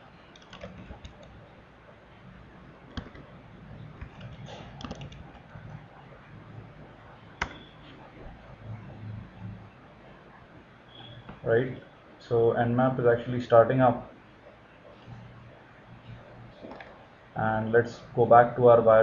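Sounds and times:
faint low hum: 0:00.0 - 0:19.0
keyboard keys clicking: 0:00.3 - 0:01.4, 0:02.9 - 0:03.3, 0:03.9 - 0:05.8.

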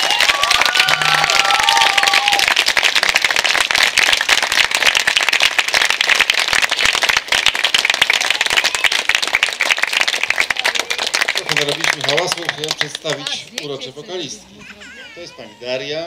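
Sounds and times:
audience applause: 0:00.0 - 0:13.4.

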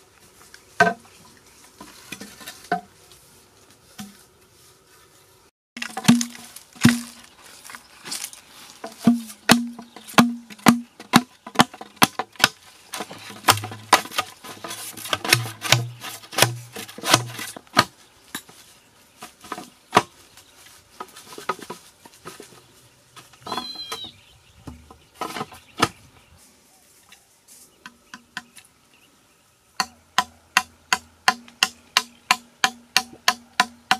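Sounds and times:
hollow knocks in bamboo tube: 0:00.8 - 0:01.1, 0:05.8 - 0:07.2, 0:08.8 - 0:17.9, 0:29.8 - 0:33.9.

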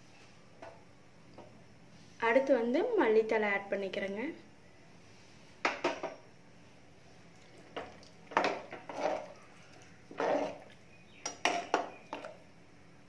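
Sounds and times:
metal spoon scraping pot: 0:08.4 - 0:11.8.

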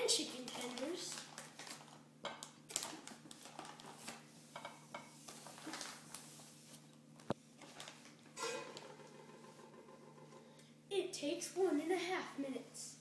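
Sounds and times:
plastic bag rustling: 0:00.2 - 0:02.0, 0:02.7 - 0:04.4, 0:05.2 - 0:06.9, 0:07.6 - 0:09.1.

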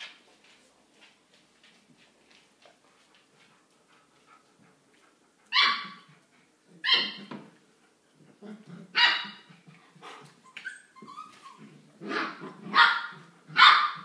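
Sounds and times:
puppy yapping: 0:05.5 - 0:06.1, 0:06.8 - 0:07.3.

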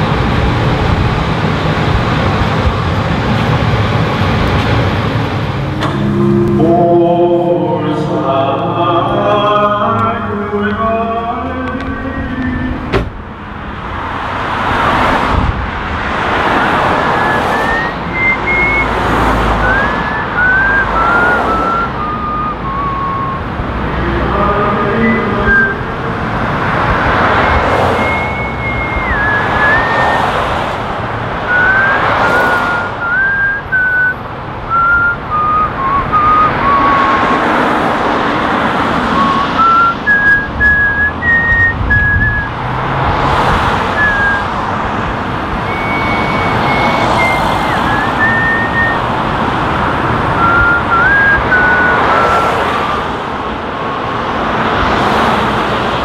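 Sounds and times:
cars passing: 0:00.0 - 0:56.0
person whistling a tune: 0:05.7 - 0:07.0, 0:17.1 - 0:25.9, 0:27.3 - 0:30.3, 0:31.5 - 0:37.5, 0:39.0 - 0:42.6, 0:43.7 - 0:44.5, 0:45.6 - 0:49.1, 0:50.3 - 0:53.1.

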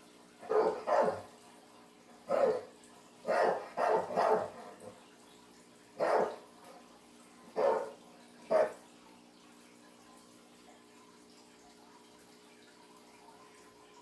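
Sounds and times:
dog barking: 0:00.4 - 0:01.3, 0:02.3 - 0:04.6, 0:06.0 - 0:06.4, 0:07.6 - 0:08.8.

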